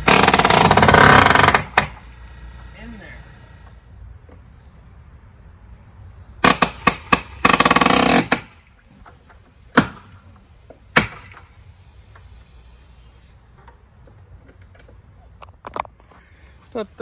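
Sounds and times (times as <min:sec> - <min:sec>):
nail gun shots into wood: 0:06.4 - 0:08.6, 0:09.7 - 0:10.1, 0:10.9 - 0:11.5.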